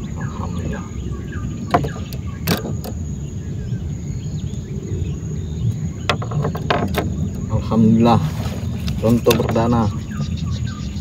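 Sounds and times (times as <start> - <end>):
low rumble: 0.0 - 11.0
fishing tackle clicks and knocks: 1.7 - 3.0, 6.0 - 7.4, 8.8 - 10.3.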